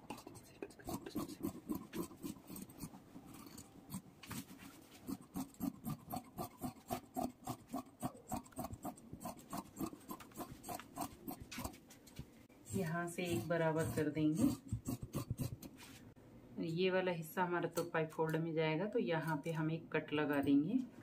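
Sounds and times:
shears snipping fabric: 0:00.9 - 0:11.8, 0:12.7 - 0:16.0.

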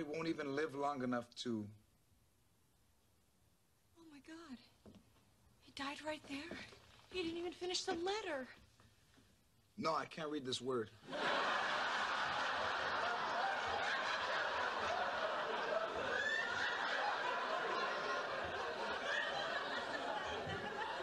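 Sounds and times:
studio audience laughing: 0:11.0 - 0:21.0.

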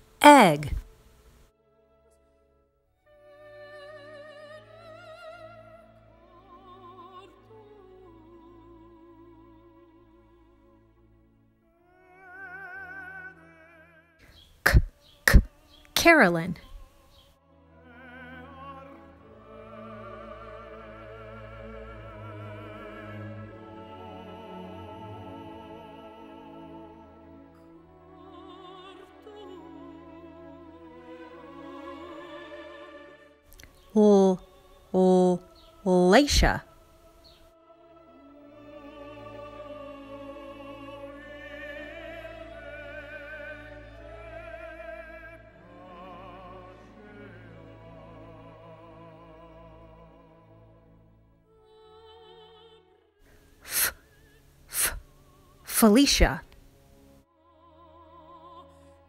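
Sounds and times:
classical music: 0:16.2 - 0:33.4, 0:37.8 - 0:52.8.

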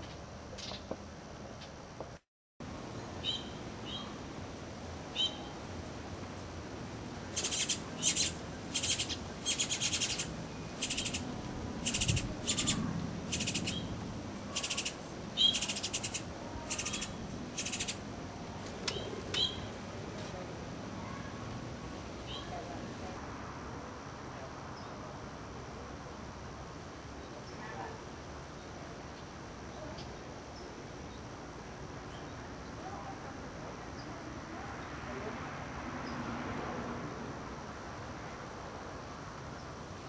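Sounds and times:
bird chirps: 0:03.2 - 0:04.2, 0:05.2 - 0:05.5, 0:07.4 - 0:13.9, 0:14.5 - 0:18.0, 0:18.9 - 0:19.7
nestlings begging calls: 0:03.2 - 0:04.2, 0:05.1 - 0:05.5, 0:07.3 - 0:18.0, 0:18.9 - 0:19.7.

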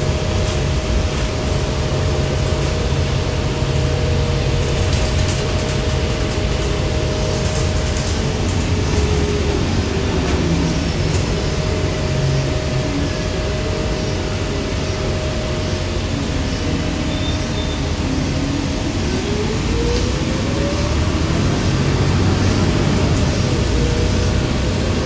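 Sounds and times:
bus engine and road noise: 0:00.0 - 0:25.0
rising whine: 0:05.6 - 0:25.0.

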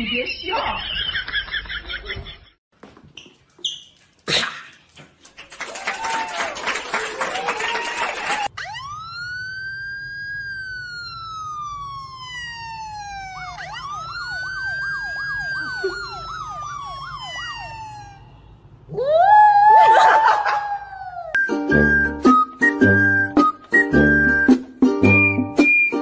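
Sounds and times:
siren wailing: 0:08.4 - 0:21.4
dog howling: 0:18.9 - 0:21.4.

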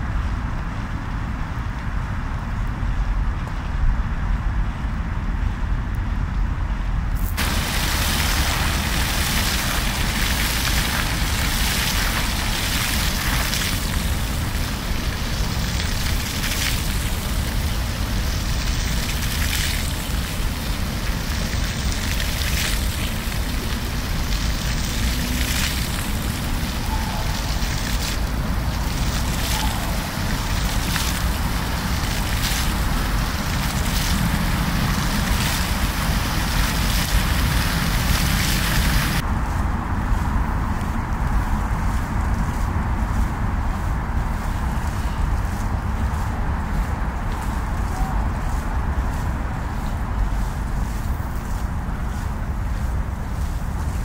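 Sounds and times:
fountain water splashing: 0:07.2 - 0:39.2.

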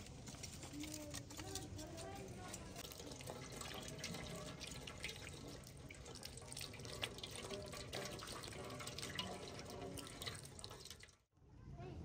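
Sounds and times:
water dripping: 0:02.4 - 0:11.3
water splashing into metal basin: 0:02.8 - 0:11.3.

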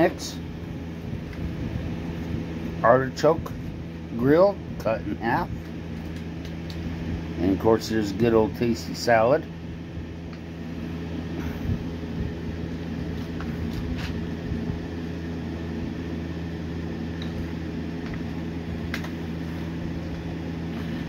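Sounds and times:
low motor hum: 0:00.0 - 0:21.0.

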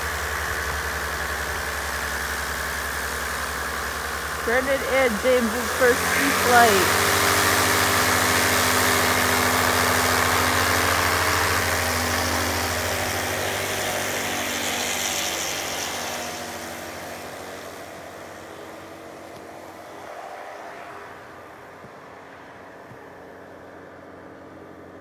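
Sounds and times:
light aircraft engine and propeller: 0:00.0 - 0:25.0.

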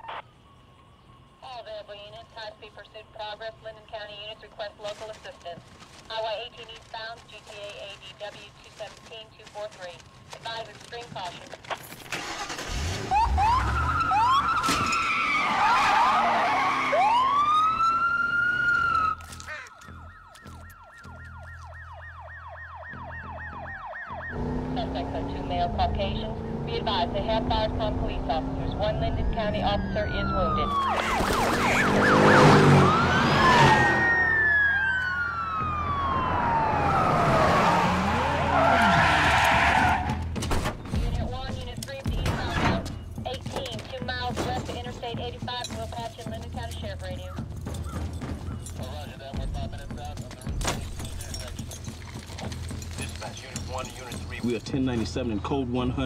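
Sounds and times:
tyres skidding: 0:04.2 - 0:22.0, 0:23.8 - 0:56.0
tyres screeching: 0:10.1 - 0:20.1, 0:30.7 - 0:45.1
siren yelping: 0:12.2 - 0:40.2
car engine revving: 0:24.2 - 0:34.6, 0:35.8 - 0:40.4.

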